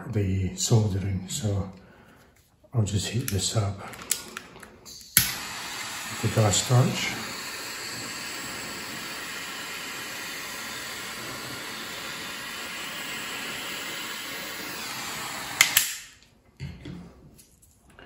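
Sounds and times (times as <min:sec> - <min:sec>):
gas torch hissing: 0:03.4 - 0:16.2
sharp click: 0:15.6 - 0:16.1.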